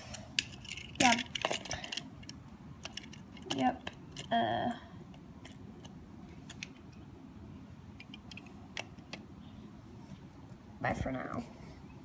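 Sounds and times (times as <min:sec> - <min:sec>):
low room noise: 0:00.0 - 0:12.0
toy cars tapping together: 0:00.3 - 0:04.4.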